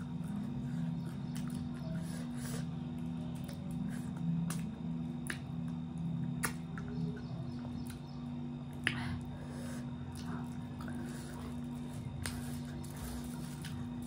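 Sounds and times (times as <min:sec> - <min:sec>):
person chewing food: 0:00.0 - 0:06.9
steady low hum: 0:00.0 - 0:14.0
wet mouth clicks and smacks: 0:04.5 - 0:05.5, 0:06.4 - 0:06.9.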